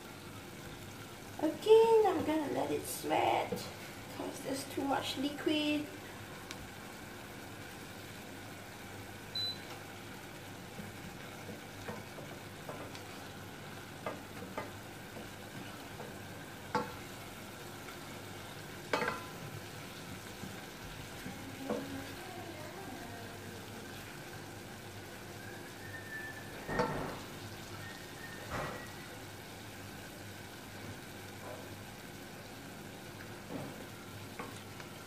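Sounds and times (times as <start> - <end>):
faint sizzle: 0.0 - 35.0
wooden spoon knocking on pot: 14.0 - 15.3, 18.9 - 19.4, 26.7 - 27.2.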